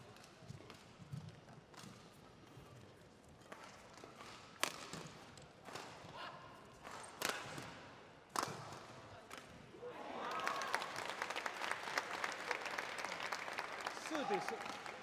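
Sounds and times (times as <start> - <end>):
rackets striking shuttlecock: 3.5 - 6.1, 6.7 - 9.6
audience applause: 10.0 - 15.0.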